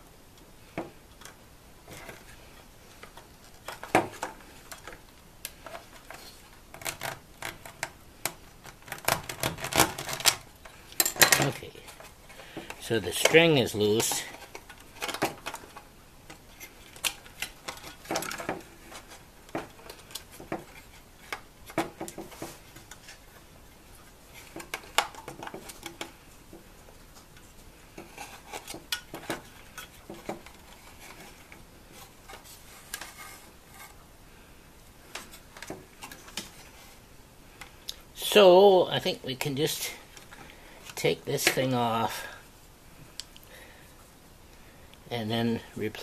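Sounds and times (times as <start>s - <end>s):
clicks and rattles of handled parts: 0.8s - 23.2s, 24.4s - 33.9s.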